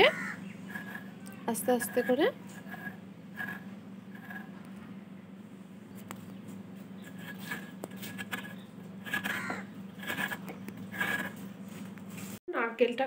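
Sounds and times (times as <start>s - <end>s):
steady low hum: 0.0s - 12.4s
metal scraper rasping coconut: 0.6s - 4.6s, 7.0s - 11.4s.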